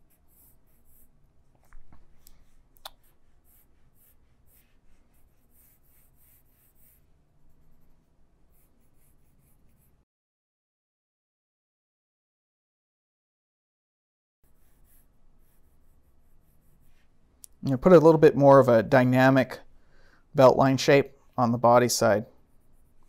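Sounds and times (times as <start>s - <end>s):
pen scratching on paper: 0.0s - 1.3s, 2.5s - 10.0s, 14.5s - 17.1s, 22.4s - 23.0s.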